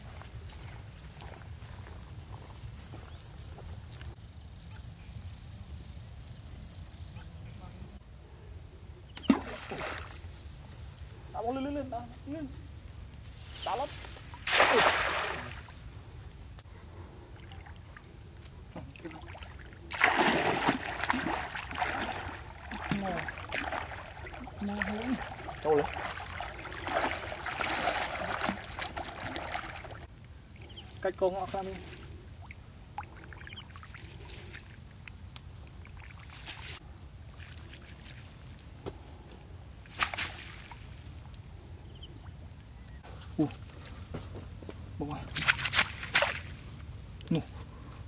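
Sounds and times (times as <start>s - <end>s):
water splashing from wading: 9.2s - 10.1s, 14.3s - 15.7s, 18.8s - 38.3s.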